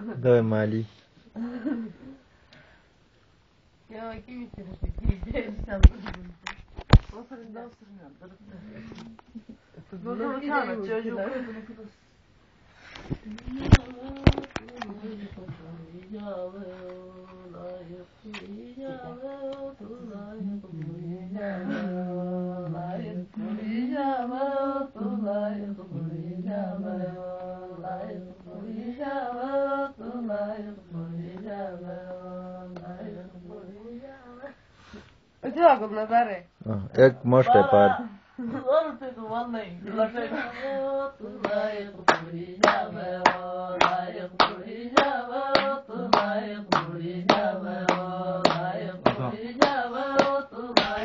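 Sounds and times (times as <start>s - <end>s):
person singing unaccompanied: 13.1s - 34.6s, 37.3s - 51.0s
person singing: 39.9s - 51.0s
hand claps: 41.4s - 51.0s.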